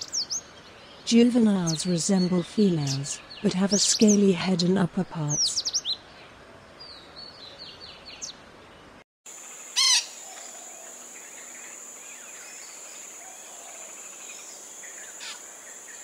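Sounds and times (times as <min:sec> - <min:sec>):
high insect drone: 0:09.3 - 0:16.0
loud bird call: 0:09.8 - 0:10.9.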